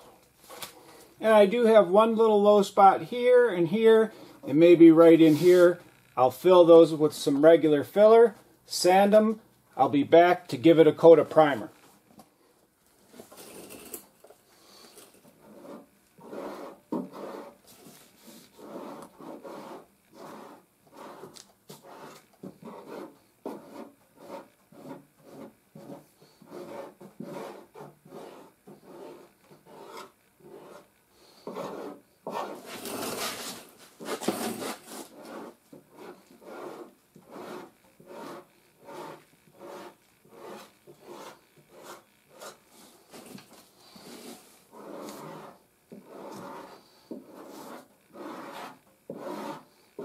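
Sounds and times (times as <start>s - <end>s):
file rasping across body filler: 15.4s - 17.6s, 18.5s - 33.4s, 34.0s - 42.6s, 43.9s - 49.7s.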